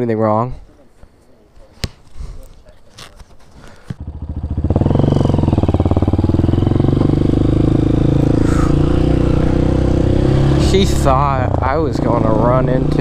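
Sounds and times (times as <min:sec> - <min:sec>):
dirt bike engine revving: 0:04.0 - 0:13.0.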